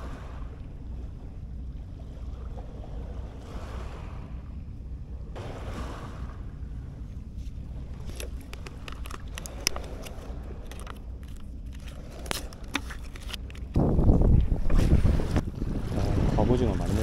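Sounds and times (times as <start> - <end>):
wind on microphone: 0.0 - 17.0
fishing tackle clicks and scrapes: 7.4 - 15.4.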